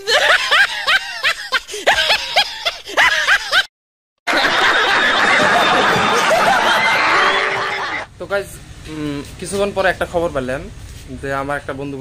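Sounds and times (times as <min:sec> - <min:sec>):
high-pitched snickering laugh: 0:00.0 - 0:03.7
studio audience laughing and cheering: 0:00.0 - 0:03.7, 0:04.3 - 0:08.1.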